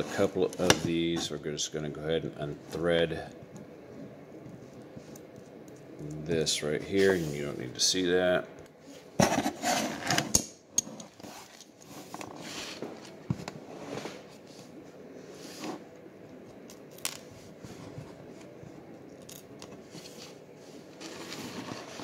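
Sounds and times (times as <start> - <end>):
metal scraping and rustling: 19.9 - 22.0.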